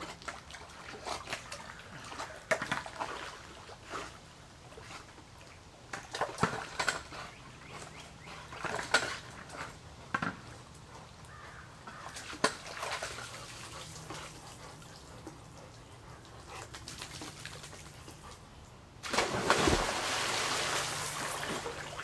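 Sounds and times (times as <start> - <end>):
water dripping and splashing: 12.2 - 18.4, 19.0 - 22.0
churning water: 19.0 - 22.0
person jumping into pool: 19.0 - 22.0.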